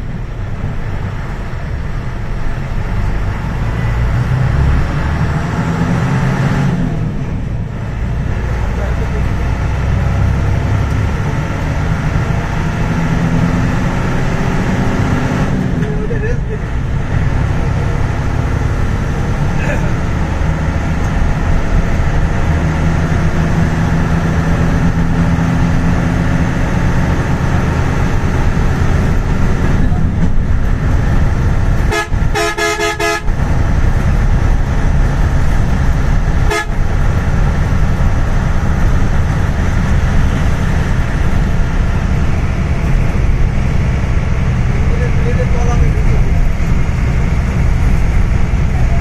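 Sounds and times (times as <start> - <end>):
vehicle engine and road rumble: 0.0 - 49.0
vehicle horn: 31.8 - 33.4, 36.4 - 36.9.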